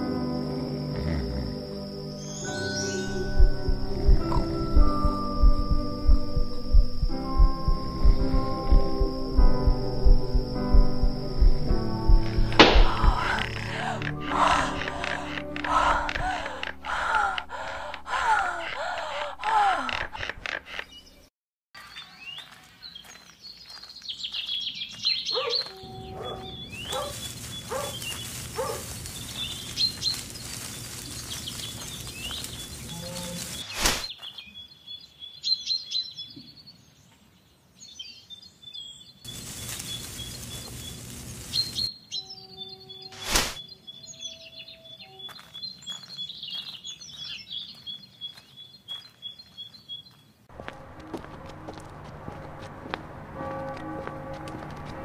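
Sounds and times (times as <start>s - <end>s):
birds chirping and calling: 10.5s - 37.2s, 37.9s - 50.2s
sharp knocks: 12.2s - 13.2s.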